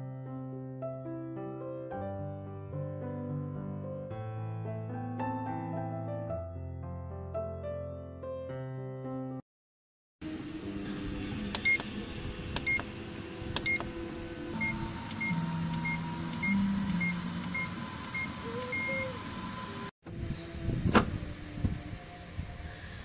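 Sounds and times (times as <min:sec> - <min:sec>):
motor whine and hum: 0:10.2 - 0:23.0
treadmill console beeping: 0:11.5 - 0:11.9, 0:12.6 - 0:12.9, 0:13.6 - 0:13.9, 0:14.6 - 0:19.9.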